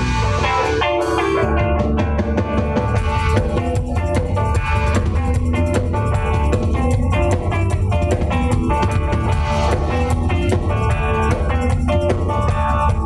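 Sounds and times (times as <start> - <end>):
bass guitar: 0.0 - 13.0
drum kit beat: 0.0 - 13.0
electric guitar: 0.0 - 13.0.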